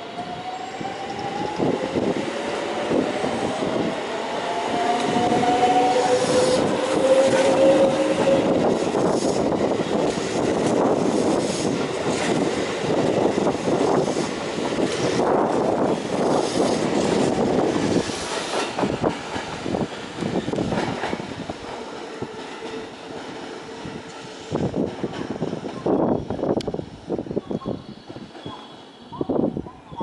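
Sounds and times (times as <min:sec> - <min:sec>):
train cars clattering: 0:02.9 - 0:26.3.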